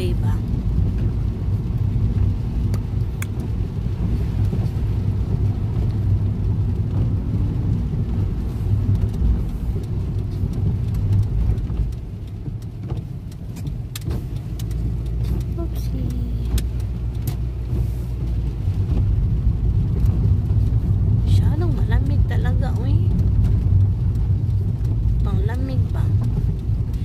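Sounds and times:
car engine and road rumble: 0:00.0 - 0:27.0
faint clicks: 0:08.9 - 0:17.5.

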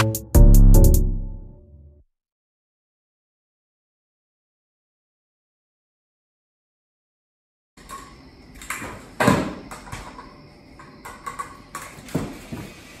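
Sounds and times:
scooter rolling on concrete: 0:07.8 - 0:13.0
scooter knocking on floor: 0:08.6 - 0:12.8.

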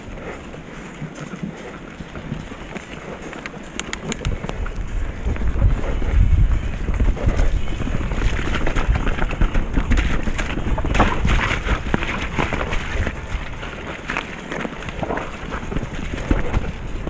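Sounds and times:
tyres rumbling over mud and stone: 0:00.0 - 0:17.0
wind buffeting microphone: 0:00.0 - 0:17.0
bike knocks and rattles: 0:01.0 - 0:13.4.

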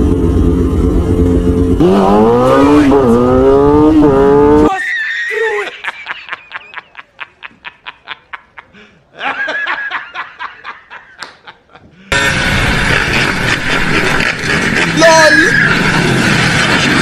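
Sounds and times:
motorcycle engine revving: 0:00.0 - 0:04.7, 0:12.1 - 0:15.0
man laughing heartily: 0:05.3 - 0:15.0.

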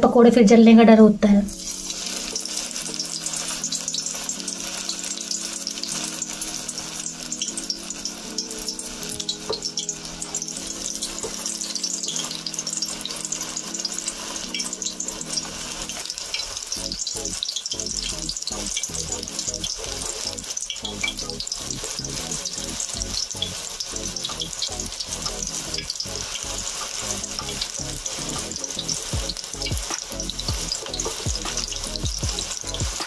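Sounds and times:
food deep-frying in hot oil: 0:01.5 - 0:33.0.

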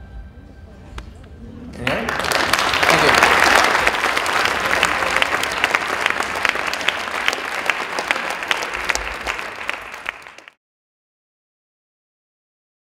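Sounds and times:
audience applauding: 0:01.7 - 0:10.6.

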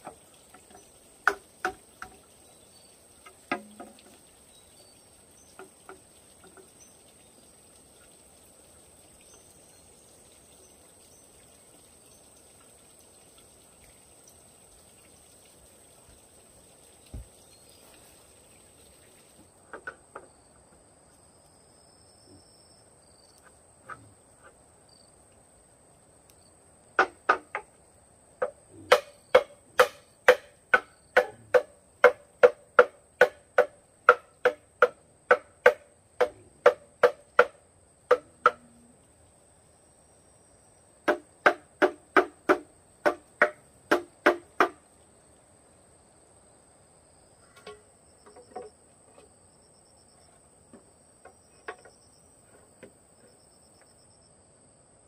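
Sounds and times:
wood knocking on bamboo: 0:00.0 - 0:02.3, 0:03.2 - 0:04.2, 0:05.6 - 0:06.7, 0:17.1 - 0:17.4, 0:19.7 - 0:20.3, 0:27.0 - 0:27.8, 0:28.4 - 0:38.8, 0:41.0 - 0:44.8, 0:47.5 - 0:49.3.

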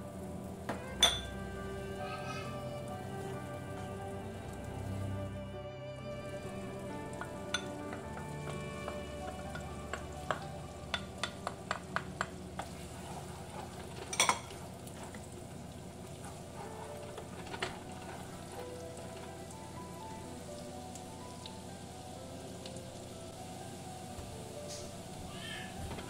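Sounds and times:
butter sizzling in frying pan: 0:00.0 - 0:26.0
wooden spatula tapping pan: 0:06.9 - 0:12.9.

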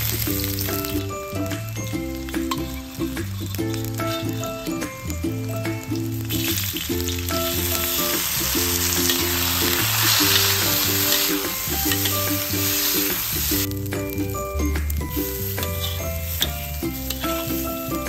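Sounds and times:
metal spatula stirring in wok: 0:00.0 - 0:05.1, 0:06.0 - 0:13.7, 0:14.3 - 0:18.0
rice sizzling in oil: 0:00.0 - 0:18.0.

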